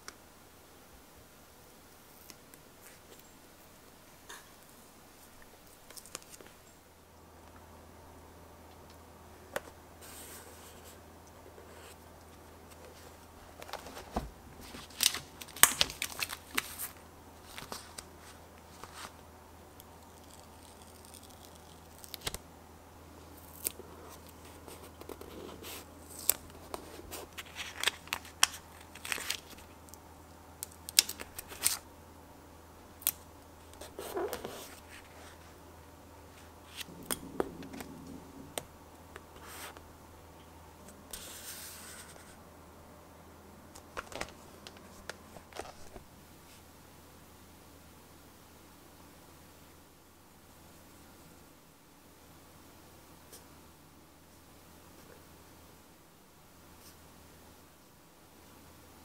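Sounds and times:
paper stickers peeling: 20.0 - 22.4, 23.4 - 29.7, 30.8 - 31.8.

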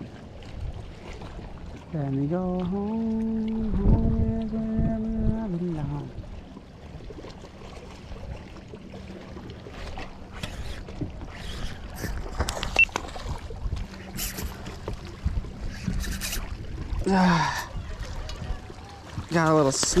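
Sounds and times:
water lapping around a kayak: 0.0 - 20.0
rod and reel rustles and clicks: 9.6 - 16.6
fishing line hissing bursts: 9.8 - 12.2.

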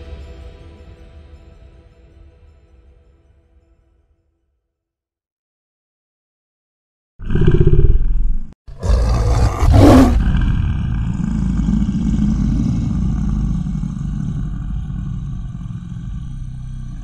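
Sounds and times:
low lion roar: 7.2 - 17.0.

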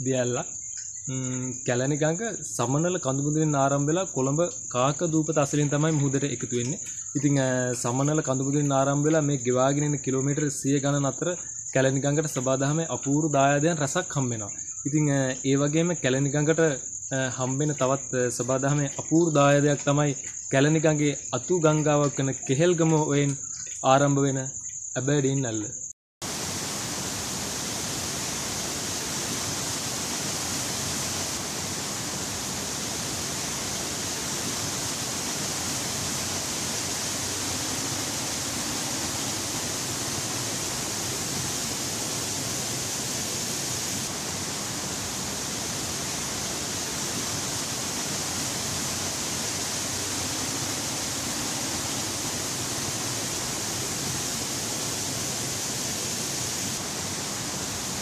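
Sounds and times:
waterfall rushing into pool: 26.2 - 58.0.

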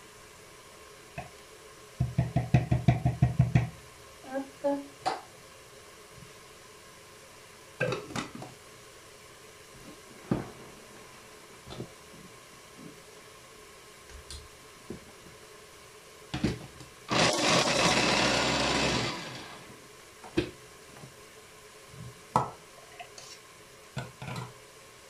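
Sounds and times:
electric chopper running: 17.1 - 19.7.

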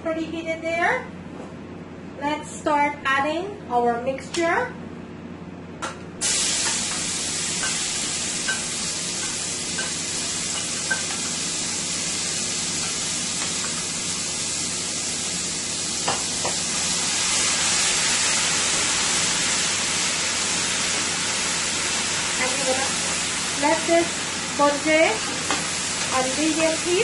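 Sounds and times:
spices sizzling in oil: 6.2 - 27.0.

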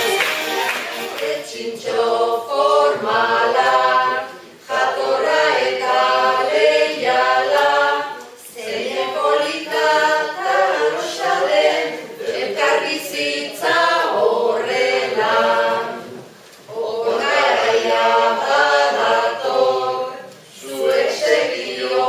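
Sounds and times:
group of voices singing: 0.0 - 22.0.

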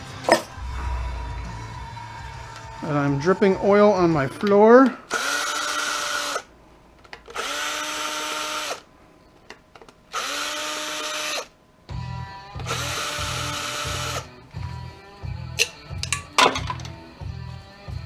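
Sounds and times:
rhythmic background music: 0.0 - 4.6, 11.9 - 18.0
cordless drill whining: 5.1 - 6.5, 7.3 - 8.8, 10.1 - 11.5, 12.6 - 14.3.

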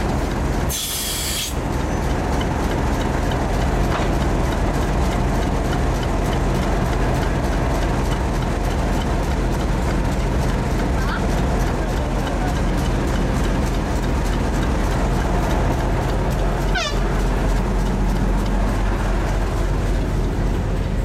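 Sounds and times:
diesel locomotive engine running: 0.0 - 21.0
sharp hiss of air: 0.7 - 1.6.

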